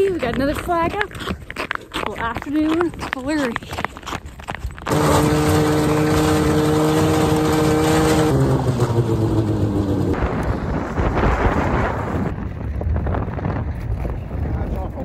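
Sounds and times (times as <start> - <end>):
snowmobile engine running: 4.9 - 13.9
wind noise rushing: 10.0 - 15.0.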